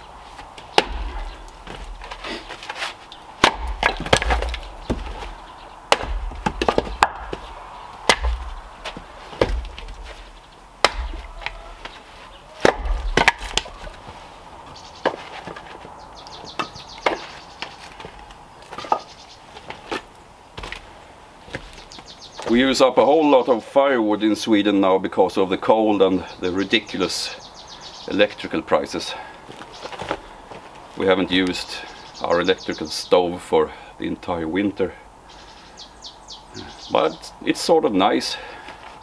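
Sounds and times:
axe chopping wood: 0:00.7 - 0:02.8, 0:03.4 - 0:12.0, 0:12.6 - 0:14.0, 0:16.6 - 0:17.4
wood pieces knocking together: 0:03.4 - 0:12.0, 0:12.6 - 0:14.0.

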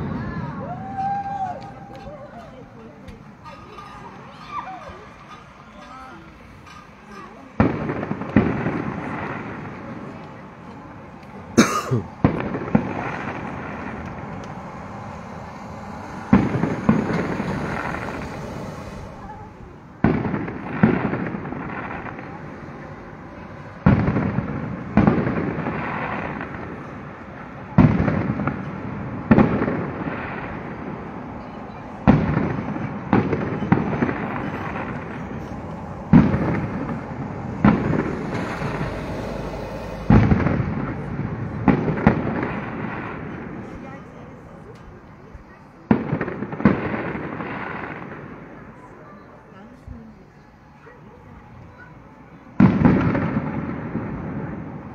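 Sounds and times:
firework shells bursting with echo: 0:11.1 - 0:22.7, 0:32.0 - 0:43.8.

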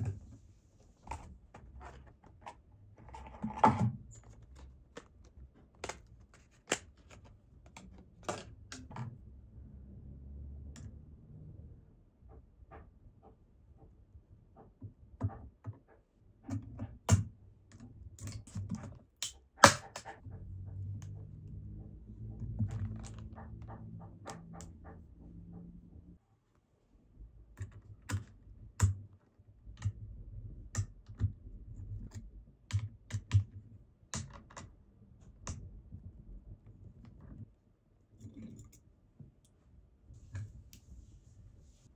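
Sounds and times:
small clicks and taps on parts: 0:14.6 - 0:21.2, 0:27.5 - 0:35.7
low rumble: 0:20.2 - 0:26.2.

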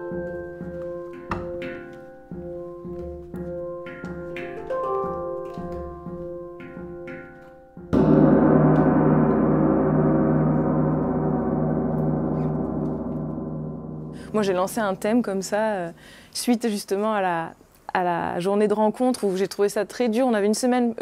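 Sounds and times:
handpan notes ringing: 0:00.0 - 0:16.2
gong struck: 0:07.9 - 0:16.2.

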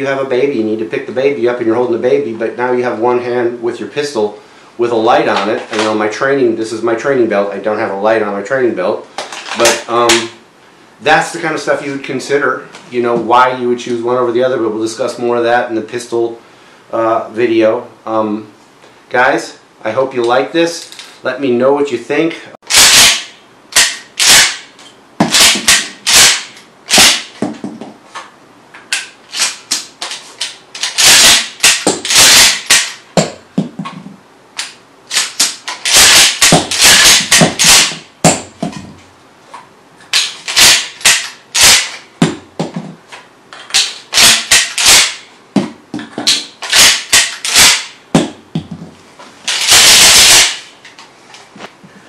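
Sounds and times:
shotgun pump racking: 0:22.7 - 0:24.6, 0:25.3 - 0:27.3, 0:28.9 - 0:33.0, 0:34.6 - 0:38.0, 0:40.1 - 0:42.0, 0:43.7 - 0:45.2, 0:46.3 - 0:47.9, 0:49.5 - 0:50.7.

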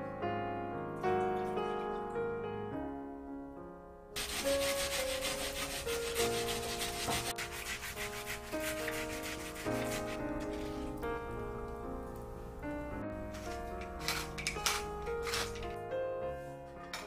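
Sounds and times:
pear rasping on metal grater: 0:14.1 - 0:15.6.

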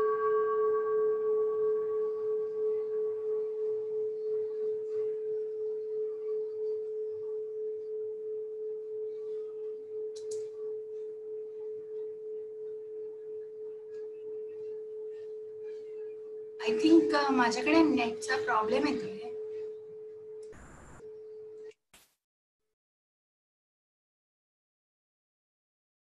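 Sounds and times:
faint click: 0:10.1 - 0:10.6.

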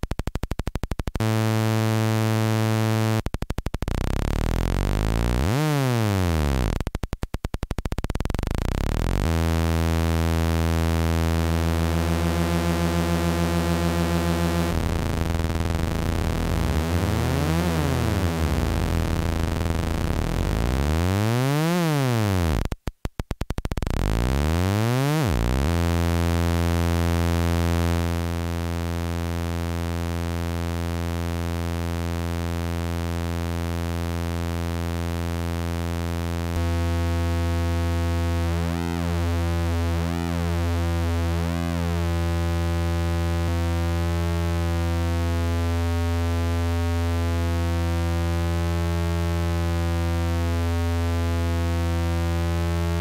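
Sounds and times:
synthesizer oscillator tone: 0:01.2 - 0:06.8, 0:08.2 - 0:22.7.

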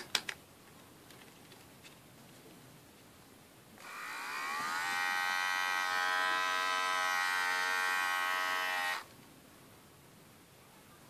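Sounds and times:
hair clipper motor buzz: 0:03.8 - 0:09.1.

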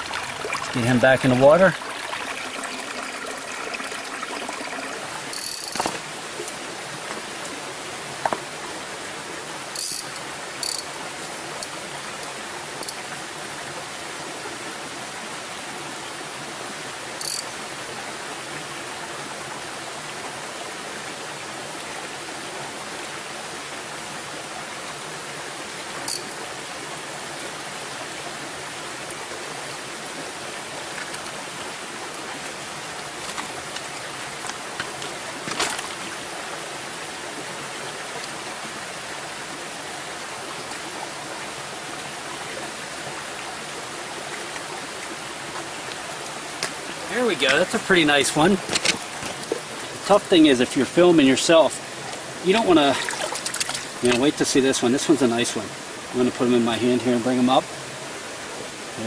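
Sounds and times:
stream running over rocks: 0:00.0 - 0:59.0
high-pitched ticks: 0:05.3 - 0:05.8, 0:09.8 - 0:10.9, 0:17.2 - 0:17.5, 0:26.1 - 0:26.4.

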